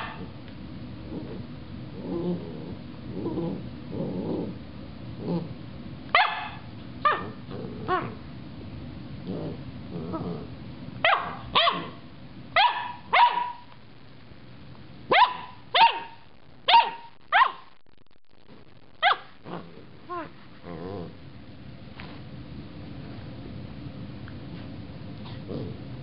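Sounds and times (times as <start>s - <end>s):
puppy barking: 0.0s - 0.3s, 6.1s - 8.2s, 11.0s - 12.0s, 12.6s - 13.7s, 15.1s - 17.7s, 19.0s - 19.4s
puppy growling: 0.0s - 5.6s, 7.1s - 8.3s, 9.2s - 10.6s, 19.1s - 21.3s, 25.2s - 26.0s
puppy yipping: 6.2s - 7.4s, 11.0s - 12.0s, 12.6s - 13.6s, 15.1s - 17.6s.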